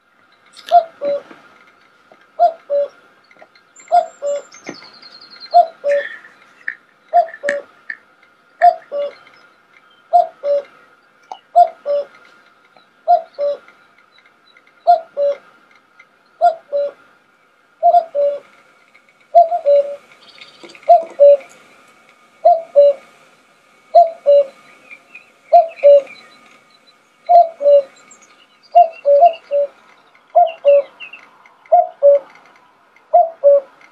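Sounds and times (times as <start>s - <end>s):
cuckoo calling: 0.5s - 1.3s, 2.2s - 13.9s, 14.5s - 15.5s, 16.3s - 17.1s, 17.8s - 18.5s, 19.3s - 21.6s, 22.4s - 23.2s, 23.8s - 33.9s.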